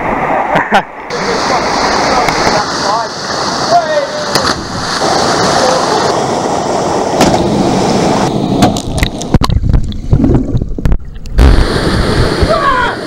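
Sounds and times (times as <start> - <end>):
water splashing and churning: 0.0 - 13.0
muffled underwater bubbling: 8.9 - 12.9.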